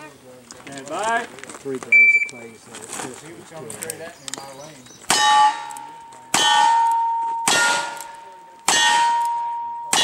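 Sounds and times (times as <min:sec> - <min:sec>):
steel plate ringing: 0:05.1 - 0:10.0.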